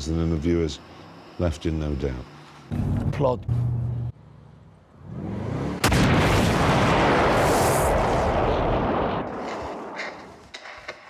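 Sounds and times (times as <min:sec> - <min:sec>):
explosion bang and blast: 0:05.2 - 0:10.3.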